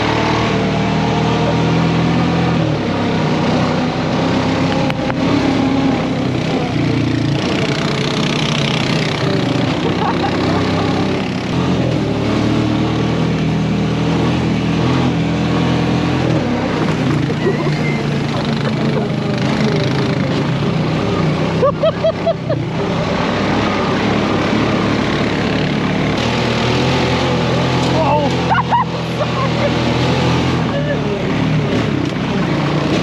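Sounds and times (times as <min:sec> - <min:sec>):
buggy engine running: 0:00.0 - 0:33.0.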